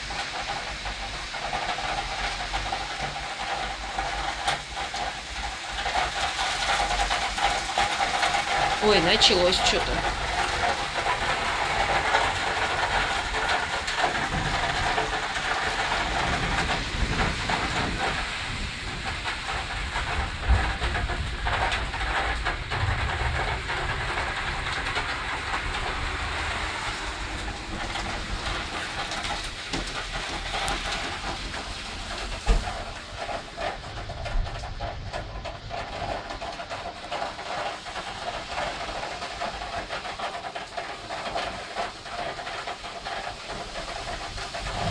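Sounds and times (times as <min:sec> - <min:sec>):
heavy rain: 0:00.0 - 0:44.9
wind buffeting: 0:44.1 - 0:44.9.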